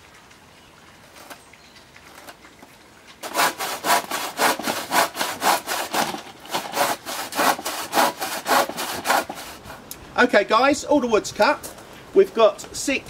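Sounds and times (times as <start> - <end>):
hand saw cutting wood: 3.2 - 9.8.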